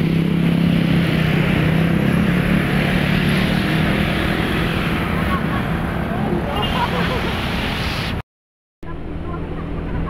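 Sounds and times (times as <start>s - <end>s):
scooter and motorcycle engines: 0.0s - 7.9s.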